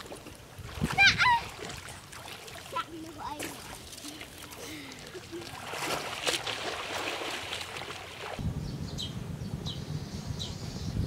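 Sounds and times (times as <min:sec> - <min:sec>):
water splashing and sloshing: 0:00.0 - 0:08.4
low wind rumble: 0:05.6 - 0:11.0.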